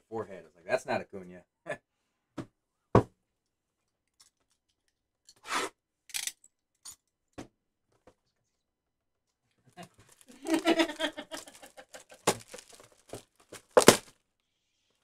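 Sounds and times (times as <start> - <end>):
box scraping on table mat: 5.4 - 5.8
cardboard box knock: 12.3 - 12.7, 13.6 - 14.1.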